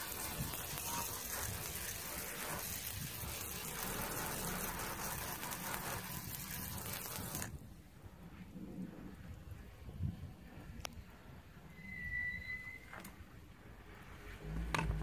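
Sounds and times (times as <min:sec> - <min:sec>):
rushing water hiss: 0:00.0 - 0:07.6.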